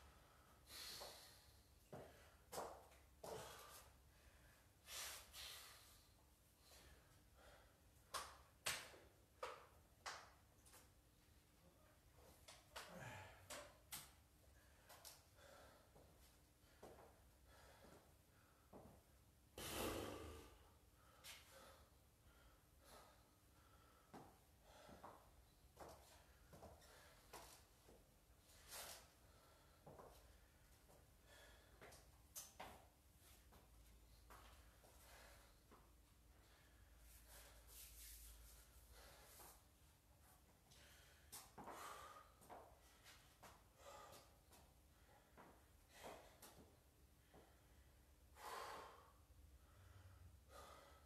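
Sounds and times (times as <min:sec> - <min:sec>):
person breathing hard: 0:00.0 - 0:02.4, 0:12.8 - 0:13.7, 0:14.6 - 0:18.8, 0:19.6 - 0:25.3, 0:31.2 - 0:32.0, 0:34.6 - 0:38.0, 0:38.6 - 0:39.6, 0:40.7 - 0:46.6, 0:47.2 - 0:51.0
sharp puffs of breath: 0:00.2 - 0:01.7, 0:04.8 - 0:07.8, 0:19.6 - 0:24.1, 0:48.3 - 0:51.0
sniffs: 0:04.9 - 0:06.0, 0:19.6 - 0:20.4.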